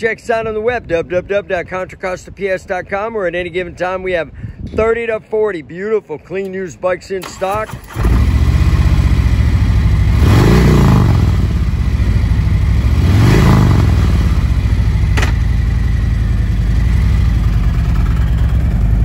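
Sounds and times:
motorcycle engine idling and revving: 0:07.6 - 0:19.0.

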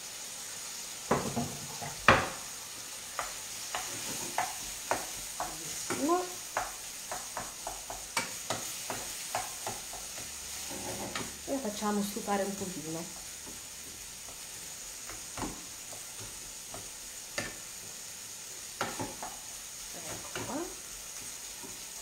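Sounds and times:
food sizzling in a frying pan: 0:00.0 - 0:22.0
wooden spatula knocking on pan: 0:01.1 - 0:02.4, 0:03.1 - 0:10.4, 0:15.0 - 0:18.0, 0:18.8 - 0:19.4, 0:20.1 - 0:20.6.

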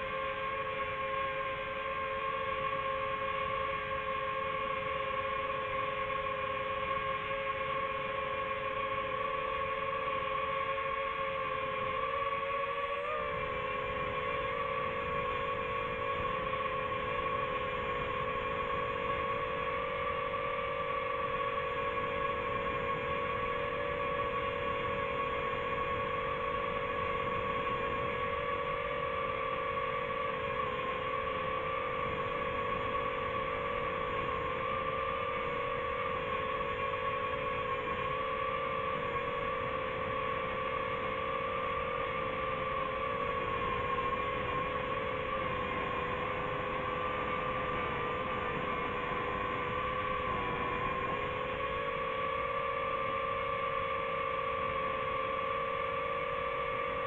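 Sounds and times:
drone propellers whining: 0:00.0 - 0:57.0.

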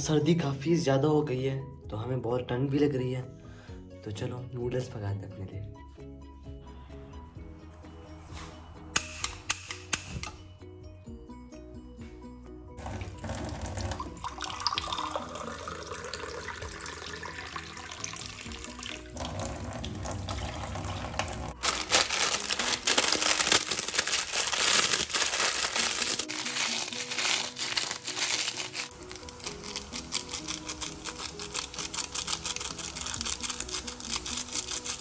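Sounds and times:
background music: 0:00.0 - 0:35.0
tap water filling a mug: 0:12.8 - 0:21.5.

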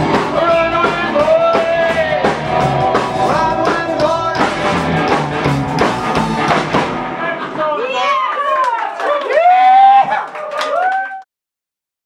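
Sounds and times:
man singing: 0:00.0 - 0:05.1
electric guitar: 0:00.0 - 0:08.3
bass: 0:00.0 - 0:08.6
drums: 0:00.0 - 0:08.7.

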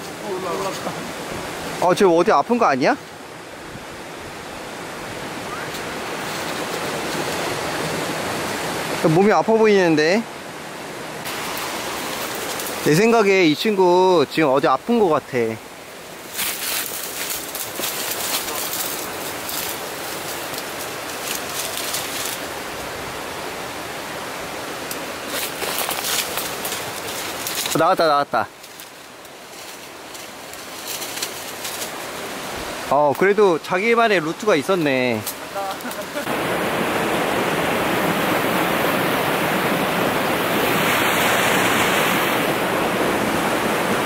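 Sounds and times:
stream water rushing: 0:00.0 - 0:44.0
short rustles: 0:16.3 - 0:22.5, 0:28.6 - 0:32.0.

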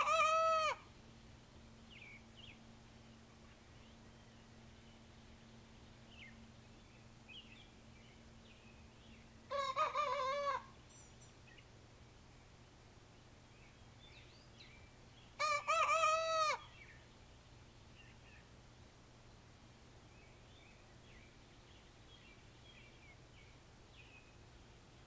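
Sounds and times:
young rooster crowing: 0:00.0 - 0:00.9, 0:09.5 - 0:10.8, 0:15.4 - 0:16.7.

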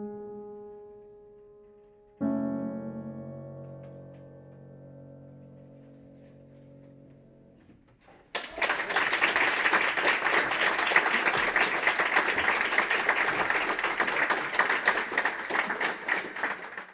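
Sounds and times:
upright piano chord: 0:00.0 - 0:07.7
audience applause: 0:08.3 - 0:16.9.

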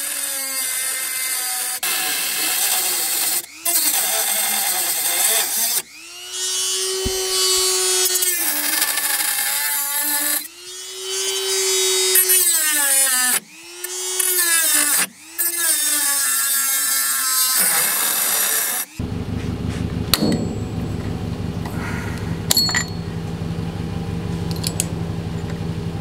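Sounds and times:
rotary tool cutting sheet steel: 0:00.0 - 0:19.0.

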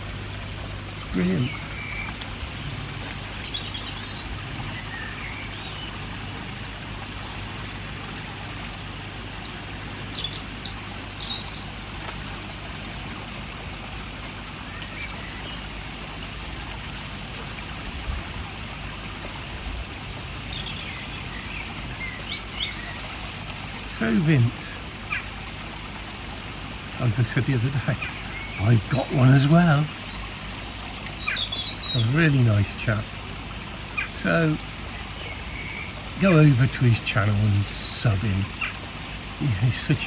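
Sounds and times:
water trickling into a pond: 0:00.0 - 0:40.0
bird chirping: 0:10.2 - 0:11.8, 0:20.2 - 0:23.0, 0:27.9 - 0:33.2.

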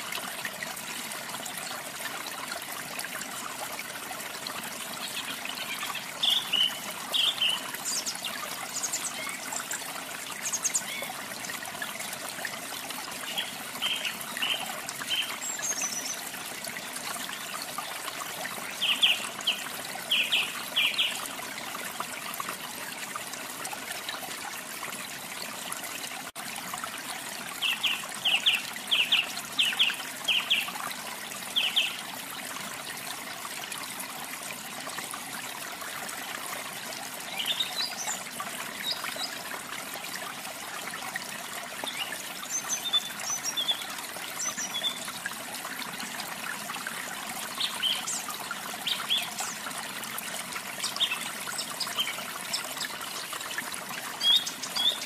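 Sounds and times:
trickle of running water: 0:00.0 - 0:55.0.

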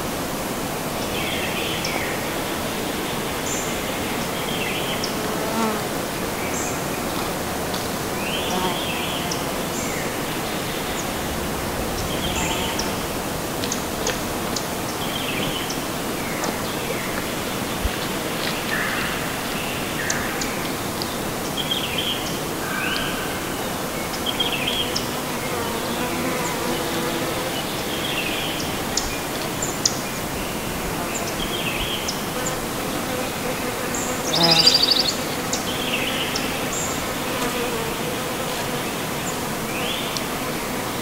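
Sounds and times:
insect buzzing: 0:04.9 - 0:14.9, 0:24.4 - 0:28.0, 0:30.9 - 0:41.0
steady rushing noise: 0:09.6 - 0:20.0.

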